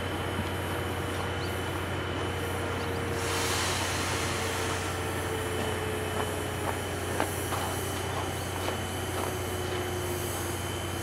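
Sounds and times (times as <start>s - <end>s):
steam hissing: 2.4s - 11.0s.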